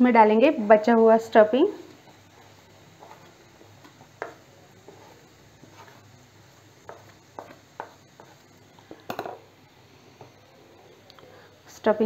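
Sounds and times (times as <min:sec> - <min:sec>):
plate tapping frying pan: 0:06.8 - 0:08.4, 0:09.0 - 0:09.5.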